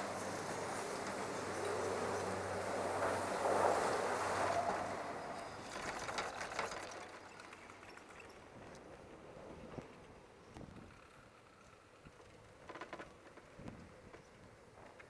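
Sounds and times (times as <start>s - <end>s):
chairlift machinery humming: 0.0s - 12.6s
chair and haul rope clacking: 12.6s - 13.5s.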